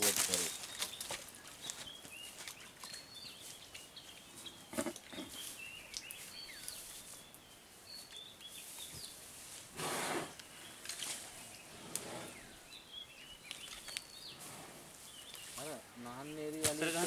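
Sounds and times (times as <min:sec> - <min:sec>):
rustling noises: 0:00.0 - 0:07.4, 0:08.0 - 0:10.2, 0:16.5 - 0:17.0
small birds chirping: 0:00.0 - 0:17.0.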